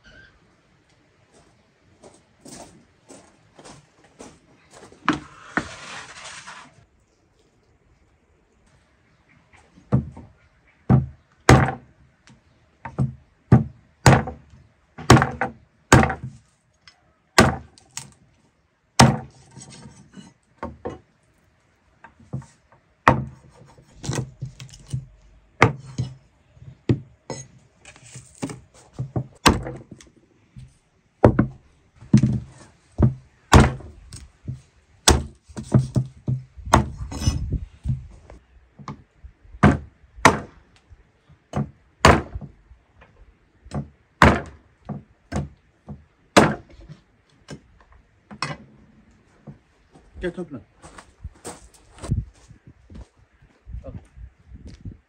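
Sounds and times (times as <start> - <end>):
blade scraping: 5.2 - 6.8
cleaver chopping on wooden board: 13.6 - 14.4, 15.0 - 16.3, 17.4 - 17.7, 19.0 - 19.3, 33.0 - 33.9, 35.1 - 36.9, 39.6 - 40.5, 41.6 - 42.4, 46.4 - 46.7.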